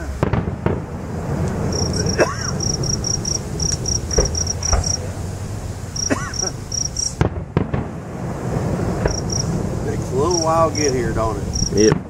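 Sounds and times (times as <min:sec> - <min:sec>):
distant fireworks bangs: 0:00.0 - 0:12.0
crickets chirping: 0:01.0 - 0:07.2, 0:08.7 - 0:12.0.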